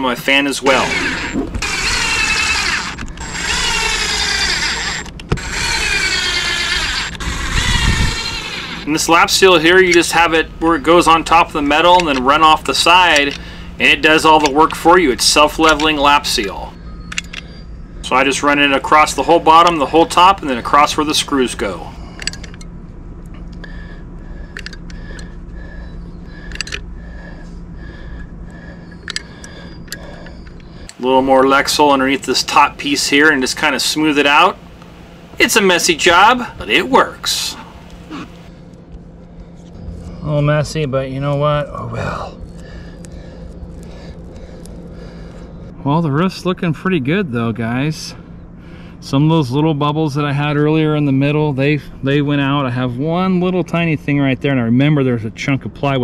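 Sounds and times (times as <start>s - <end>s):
steady low hum: 0.0s - 56.0s
cordless drill driving screws: 0.6s - 8.9s.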